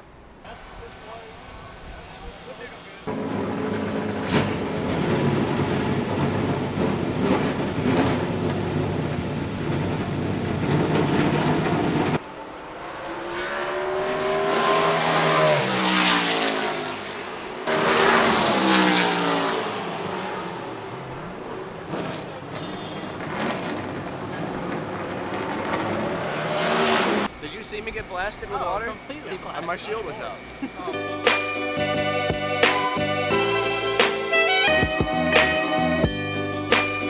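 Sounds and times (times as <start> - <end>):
truck engines rumbling: 0.0 - 13.0, 13.8 - 37.0
engines revving and passing by: 3.1 - 28.1.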